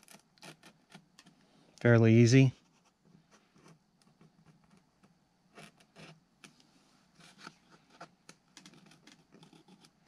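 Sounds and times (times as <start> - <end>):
fingernail clicking and scratching foam: 3.6 - 6.6, 7.2 - 10.0.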